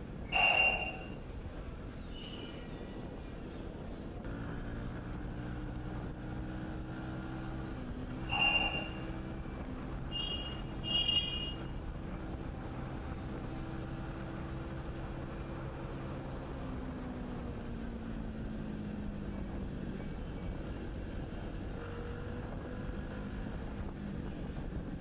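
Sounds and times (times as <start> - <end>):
road and wind noise: 0.0 - 25.0
vehicle horn honks: 0.3 - 1.2, 8.2 - 9.2, 10.1 - 11.7
motorcycle engine running: 3.9 - 25.0.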